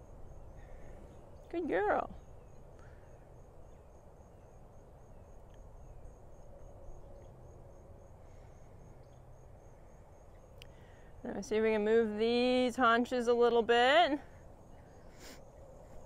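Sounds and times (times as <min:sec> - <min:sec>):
insect chirping: 0:00.0 - 0:16.0
faint ticks: 0:10.6 - 0:10.8.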